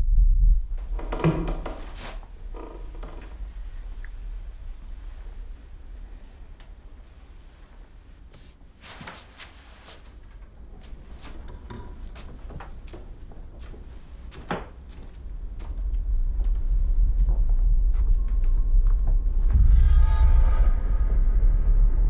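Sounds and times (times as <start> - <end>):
low rumble: 0.0 - 8.3, 15.1 - 22.0.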